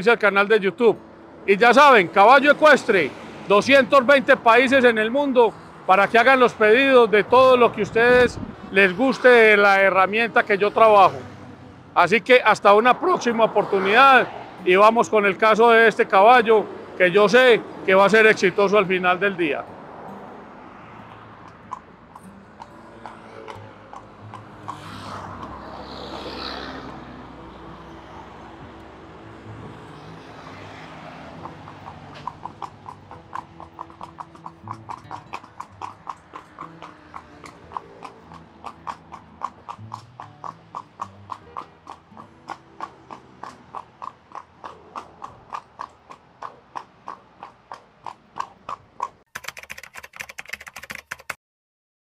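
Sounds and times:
horse hooves on pavement: 1.5 - 11.4, 12.0 - 51.4.

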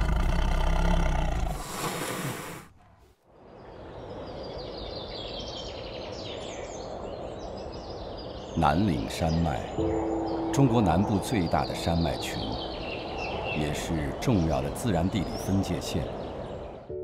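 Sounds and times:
tiger roaring: 0.0 - 2.6
birds chirping: 0.0 - 17.0.

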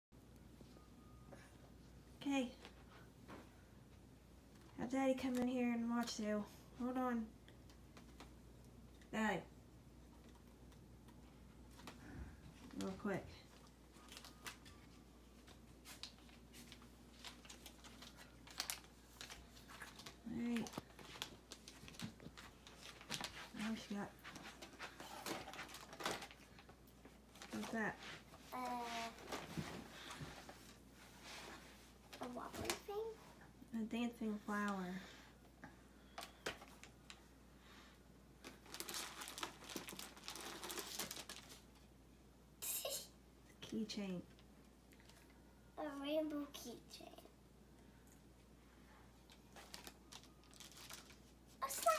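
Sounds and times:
plastic packaging crinkling: 13.5 - 27.8, 38.4 - 41.8, 49.3 - 51.9.

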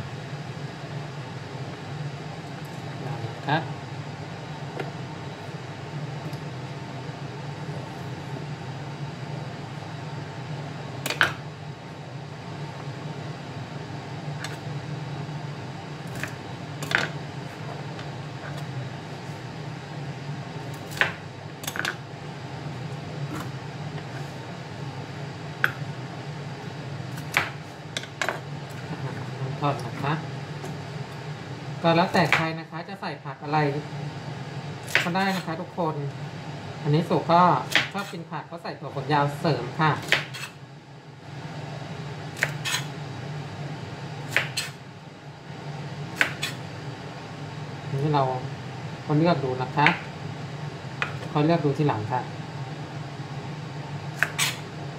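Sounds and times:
steady low hum: 0.0 - 54.9
knife chopping on cutting board: 37.7 - 38.1, 40.0 - 40.5, 44.3 - 44.8, 54.2 - 54.6.

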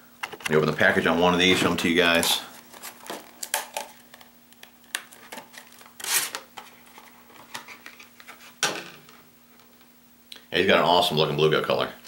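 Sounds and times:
plastic package rustling: 1.4 - 9.8.

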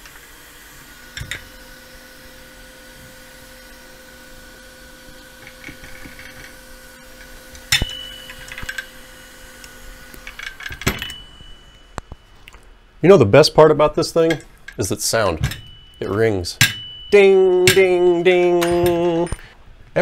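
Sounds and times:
faint steady hum: 0.0 - 20.0
sharp metallic clink: 7.7 - 8.9, 14.2 - 19.4.

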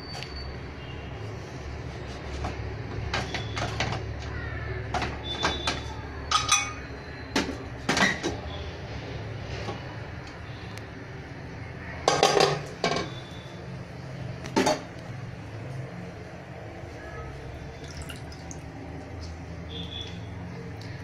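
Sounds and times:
metal lid clinks and scrapes: 6.3 - 6.8.

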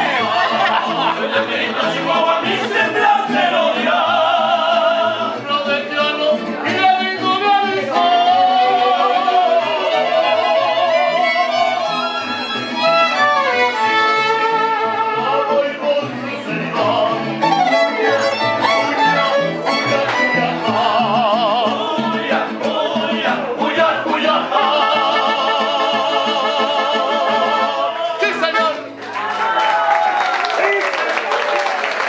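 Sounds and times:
strummed guitars: 0.0 - 29.3
violins playing melody: 17.4 - 20.6.

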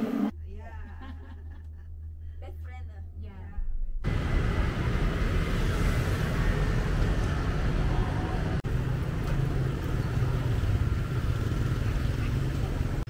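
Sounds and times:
road traffic noise: 4.0 - 13.0
motorbikes: 4.1 - 13.0.

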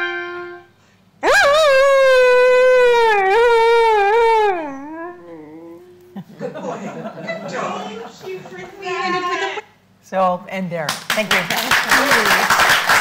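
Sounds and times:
dog howling: 1.2 - 6.2.

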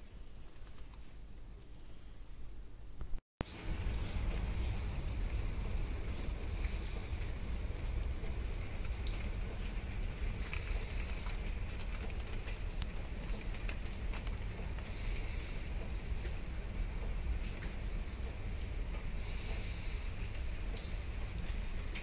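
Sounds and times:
low rumble: 3.4 - 17.4.

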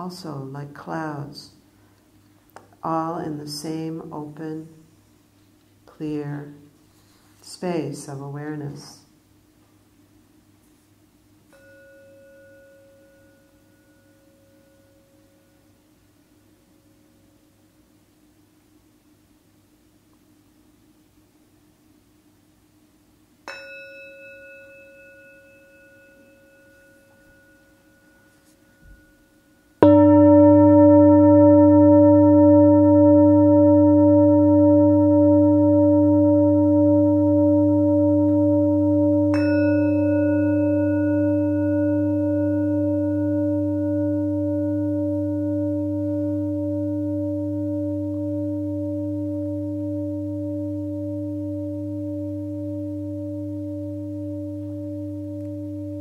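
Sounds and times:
small singing bowl ringing: 11.5 - 17.4, 23.4 - 56.0
large singing bowl deep tone: 26.0 - 56.0.

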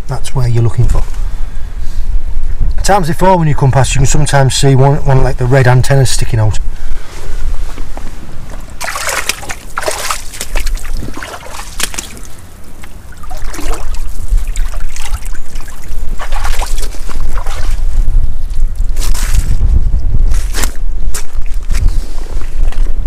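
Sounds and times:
wind buffeting microphone: 0.0 - 23.0
sea water splashing among rocks: 8.8 - 18.0.

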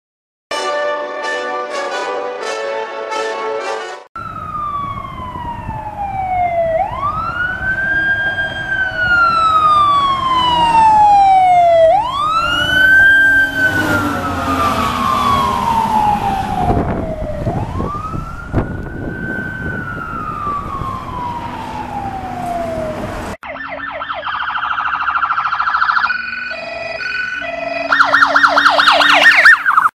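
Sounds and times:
music: 0.5 - 4.1
engine and road noise: 4.2 - 30.0
fire engine siren wailing: 4.2 - 30.0.

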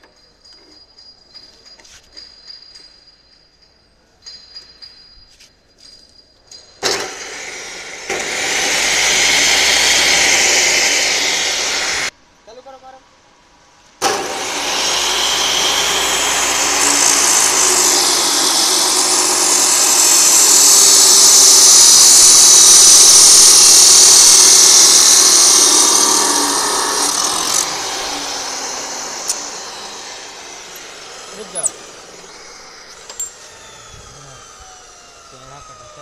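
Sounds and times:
cut-off saw grinding iron bar: 6.8 - 12.1, 14.0 - 36.0.

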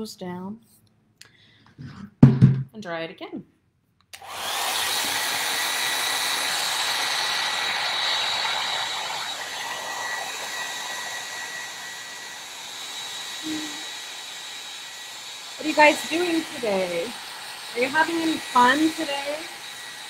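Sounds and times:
hair dryer blowing: 4.2 - 20.0.

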